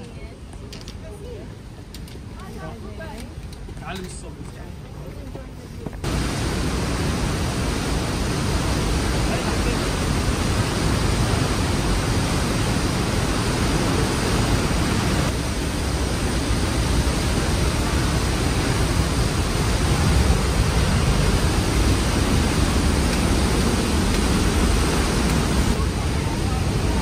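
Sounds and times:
water rushing through rock gorge: 0:06.0 - 0:27.0.

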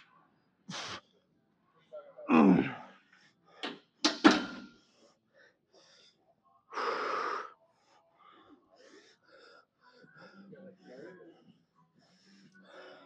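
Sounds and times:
man breathing hard: 0:04.8 - 0:13.0.

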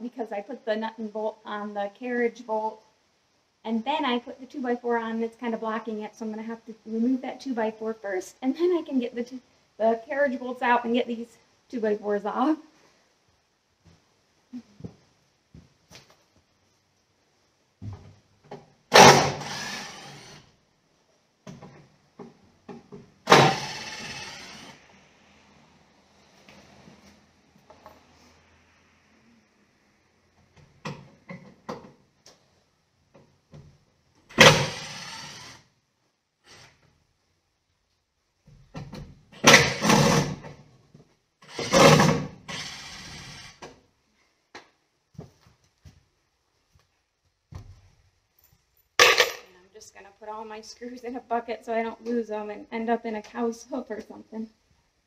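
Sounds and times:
cordless drill-driver running: 0:19.3 - 0:20.4, 0:23.3 - 0:24.8, 0:34.4 - 0:35.7, 0:41.5 - 0:43.6.

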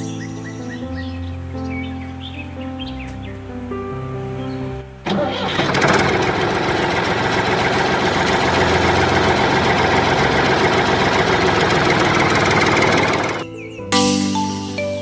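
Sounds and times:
toy tractor engine running: 0:05.1 - 0:13.4.

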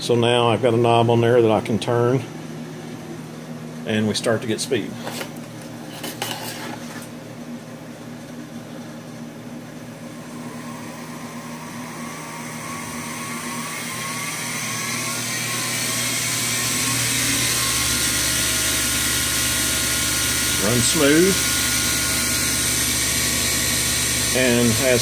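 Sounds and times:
electric motor whine: 0:10.1 - 0:25.0.

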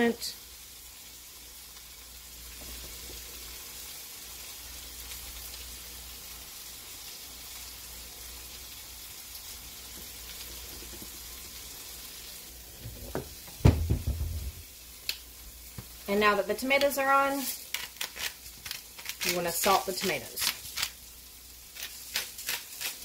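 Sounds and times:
steady hiss: 0:00.0 - 0:23.0
sharp knocks: 0:13.2 - 0:14.6.

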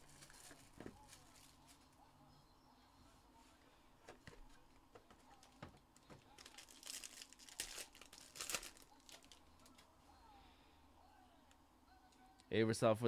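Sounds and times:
wrapping crinkling and tearing: 0:00.0 - 0:01.8, 0:05.3 - 0:09.9.

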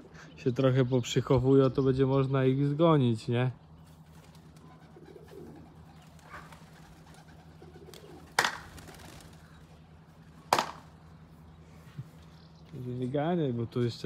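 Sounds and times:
pigeons cooing: 0:03.8 - 0:10.7
sharp snaps: 0:08.3 - 0:08.8, 0:10.5 - 0:10.9.

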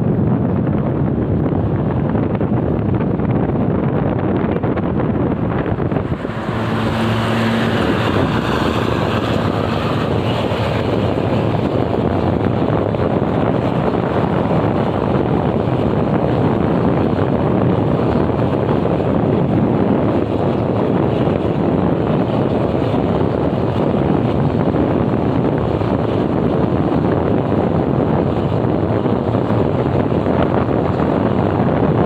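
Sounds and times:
road and engine noise: 0:00.0 - 0:32.0
wind rushing over microphone: 0:00.0 - 0:32.0.

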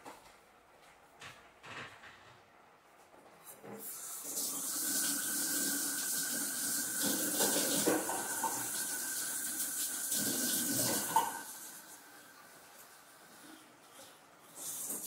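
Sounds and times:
tap running into sink: 0:06.3 - 0:08.9
dishes clattering in water: 0:07.0 - 0:08.8, 0:10.7 - 0:11.5.

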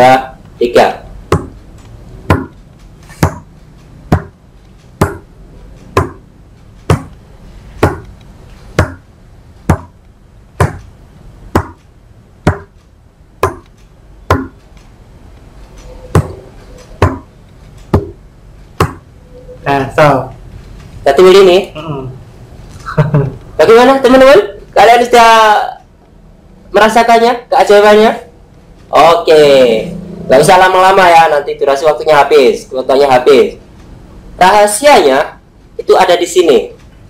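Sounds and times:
fingertip tapping cards on wood: 0:01.3 - 0:01.6, 0:02.3 - 0:07.2, 0:07.8 - 0:09.0, 0:09.7 - 0:10.0, 0:10.6 - 0:11.0, 0:11.6 - 0:14.7, 0:16.2 - 0:18.2, 0:18.8 - 0:19.0.

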